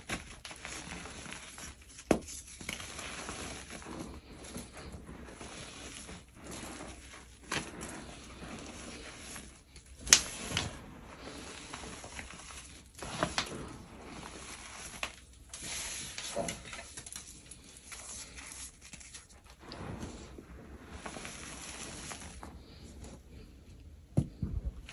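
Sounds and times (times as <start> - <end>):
hands crunching gym chalk: 0.0 - 19.8
sharp chalk crunches: 0.0 - 23.2.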